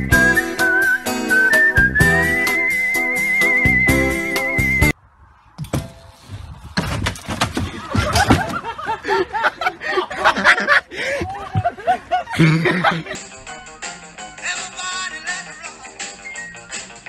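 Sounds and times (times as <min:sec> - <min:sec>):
wooden knocks and clatter: 0:05.6 - 0:08.8
people laughing loudly: 0:07.6 - 0:13.4.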